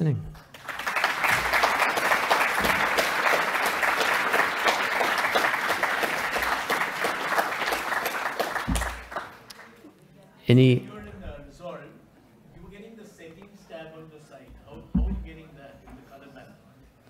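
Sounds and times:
audience applauding: 0.3 - 9.9.

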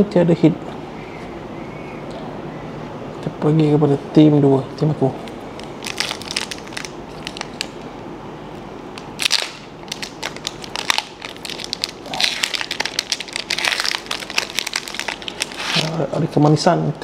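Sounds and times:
foil wrapper crinkling and tearing: 5.6 - 7.8, 9.0 - 16.0.

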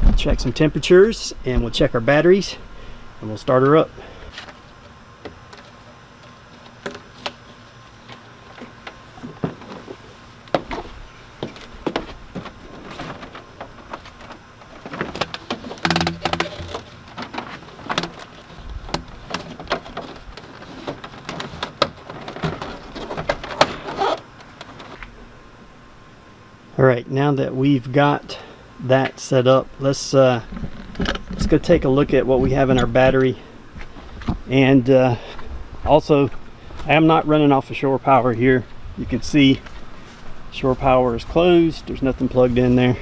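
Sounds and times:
plastic hose clicks and knocks: 14.9 - 18.2.

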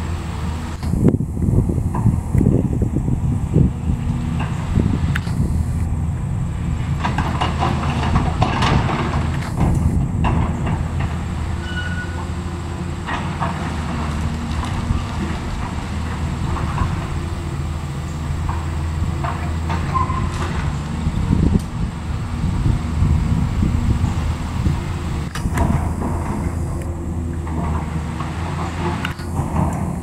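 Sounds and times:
excavator diesel engine running: 0.0 - 30.0
debris clattering into truck bed: 6.9 - 21.6.

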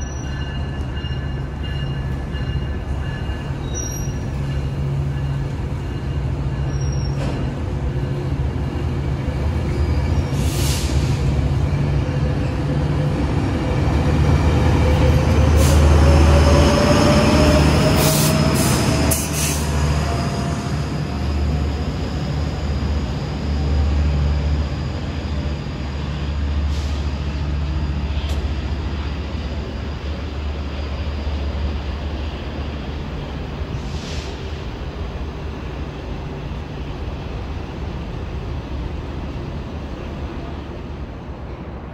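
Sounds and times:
diesel locomotive engine drone: 0.0 - 41.9.

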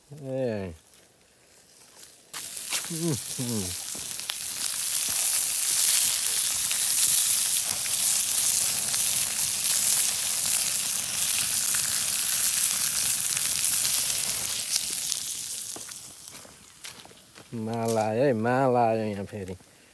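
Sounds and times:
small pops and spits: 2.3 - 16.6
meat sizzling on hot stone: 2.3 - 19.2.

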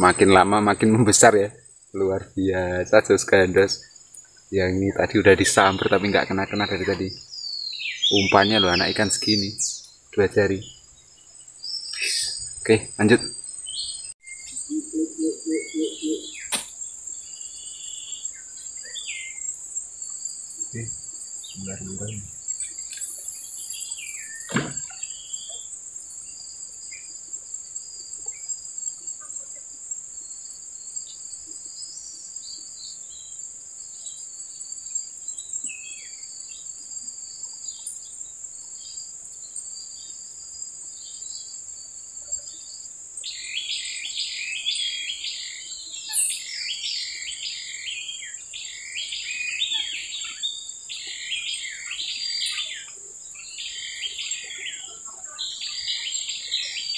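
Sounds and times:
bird singing rapid chirps: 0.0 - 27.2, 42.3 - 56.9
bird chirps: 0.0 - 33.4, 35.2 - 36.8, 42.2 - 56.9
insects droning: 0.0 - 56.9
knock: 24.5 - 24.9.

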